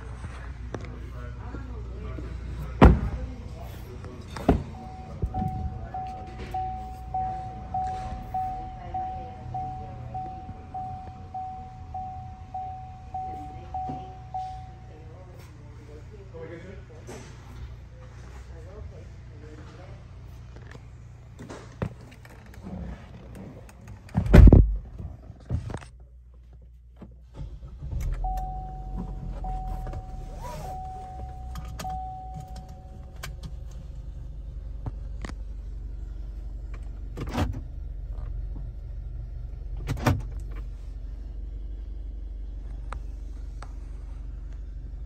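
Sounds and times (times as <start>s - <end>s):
car engine starting and idling: 0.0s - 45.0s
steady high tone: 4.3s - 15.2s.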